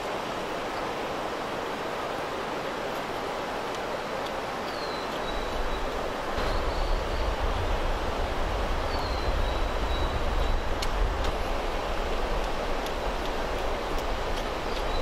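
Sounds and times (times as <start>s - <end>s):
rushing water: 0.0s - 15.0s
wind rumble on microphone: 5.2s - 15.0s.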